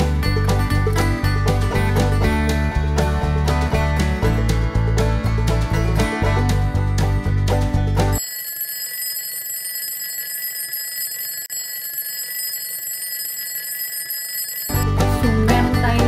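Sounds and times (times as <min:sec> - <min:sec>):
strummed bluegrass music: 0:00.0 - 0:08.2, 0:14.8 - 0:16.0
alarm clock ringing: 0:08.1 - 0:14.9.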